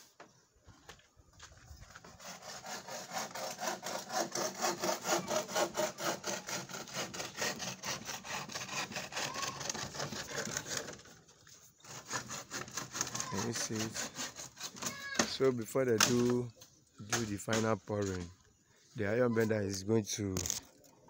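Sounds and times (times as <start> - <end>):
hand saw cutting wood: 1.9 - 16.5.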